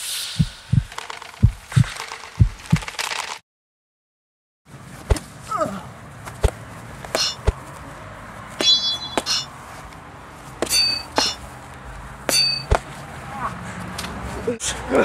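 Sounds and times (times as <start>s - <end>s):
foam swords clashing: 6.4s - 7.6s, 8.6s - 9.5s, 10.6s - 11.4s, 12.3s - 12.9s.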